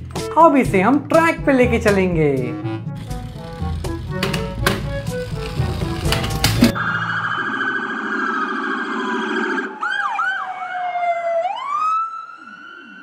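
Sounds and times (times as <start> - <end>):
electronic police siren: 6.7 - 13.0.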